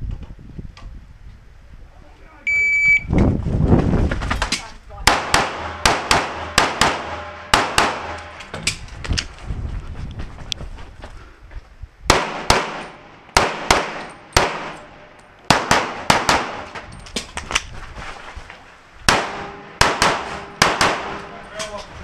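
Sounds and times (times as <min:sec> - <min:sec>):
pistol shots: 0:05.1 - 0:08.4, 0:12.1 - 0:16.8, 0:19.1 - 0:21.3.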